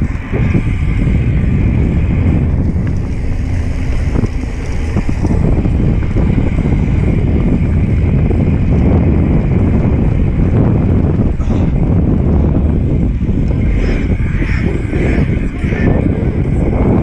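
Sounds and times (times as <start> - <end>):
tyres rolling over dirt: 0.0 - 11.4
bike rattles and knocks: 0.0 - 17.0
wind buffeting microphone: 0.0 - 17.0.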